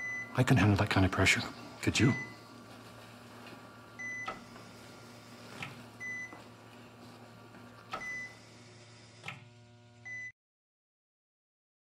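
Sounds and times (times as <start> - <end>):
patient monitor beeping: 0.0 - 2.6, 4.0 - 6.5, 8.0 - 8.4
low hum of room equipment: 0.0 - 10.3.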